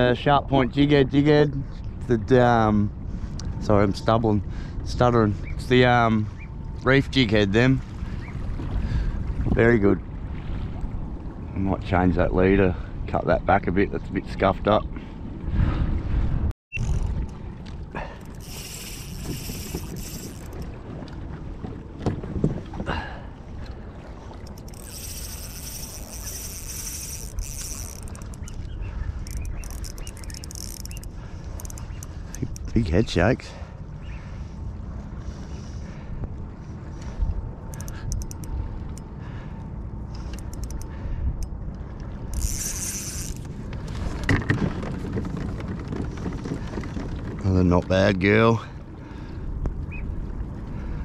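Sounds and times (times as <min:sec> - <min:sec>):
water noise: 0:00.0 - 0:51.0
wind: 0:00.0 - 0:51.0
spinning reel whirring: 0:18.2 - 0:20.6, 0:24.4 - 0:28.6, 0:29.2 - 0:32.6, 0:37.7 - 0:38.5, 0:40.3 - 0:40.9, 0:42.3 - 0:43.5.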